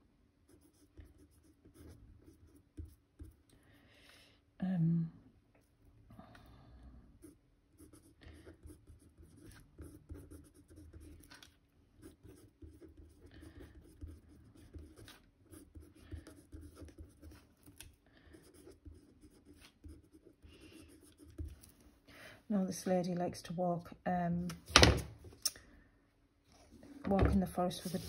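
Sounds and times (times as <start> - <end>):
pen scratching on paper: 0.5 - 3.4, 7.2 - 11.4, 12.0 - 21.7, 27.6 - 28.0.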